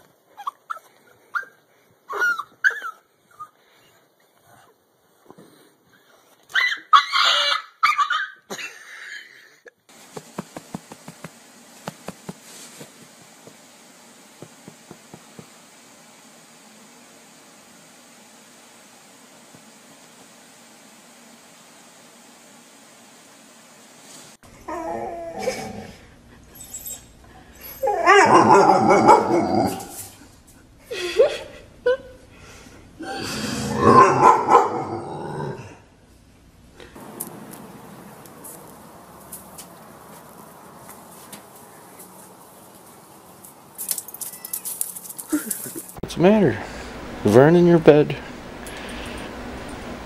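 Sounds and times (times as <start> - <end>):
dog whining and yowling: 0.3 - 3.6, 6.5 - 8.4, 24.6 - 30.1
animal cries: 6.5 - 8.4, 27.7 - 30.0, 33.1 - 35.6.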